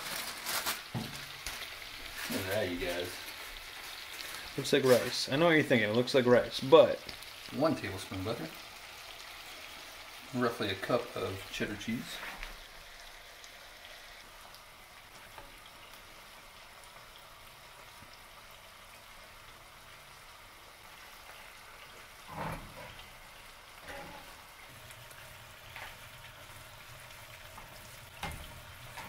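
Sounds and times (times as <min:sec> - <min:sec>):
rice sizzling in skillet: 0:00.0 - 0:29.0
spoon scraping pan: 0:23.8 - 0:24.4.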